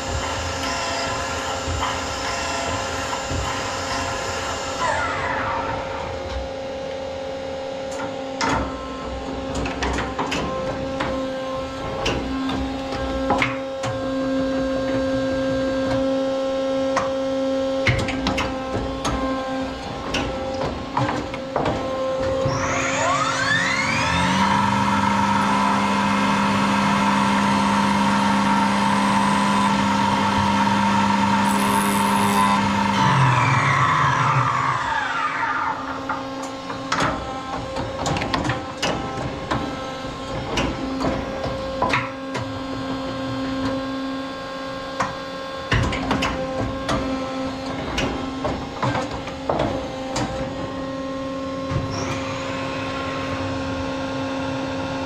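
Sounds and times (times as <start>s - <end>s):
steady machine hum: 10.6s - 38.0s
mill spindle spinning: 18.8s - 37.0s.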